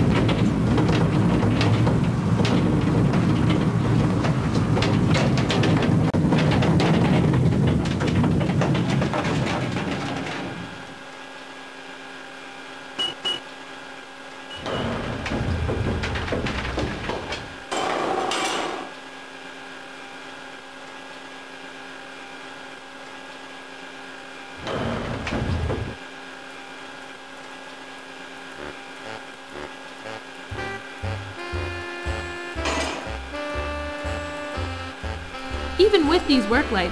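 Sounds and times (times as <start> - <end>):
hoist cage rattling: 0.0 - 10.9
metal clanking: 0.0 - 10.9, 32.6 - 33.5
gate sliding and scraping: 0.0 - 11.0, 14.6 - 18.9, 32.6 - 35.9
hum of underground machinery: 0.0 - 36.9
short high beeps: 13.0 - 13.4.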